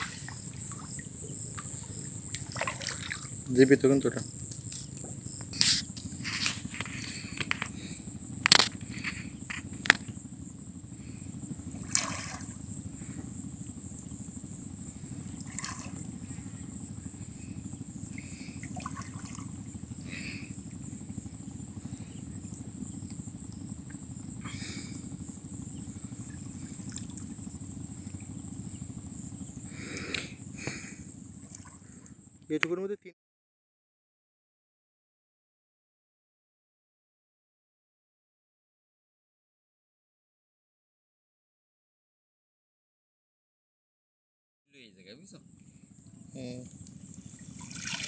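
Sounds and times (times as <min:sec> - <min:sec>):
low steady rumble: 0:00.0 - 0:32.6, 0:44.8 - 0:48.0
high-pitched insect drone: 0:00.0 - 0:33.0, 0:44.8 - 0:48.0
water splashes and knocks: 0:02.3 - 0:03.3, 0:47.6 - 0:48.0.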